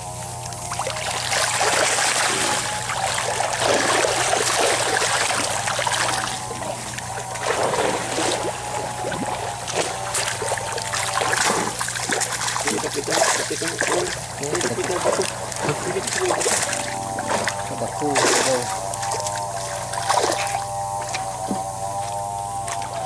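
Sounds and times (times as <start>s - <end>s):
steady low hum: 0.0s - 23.0s
water splashing in fish tank: 0.4s - 21.6s.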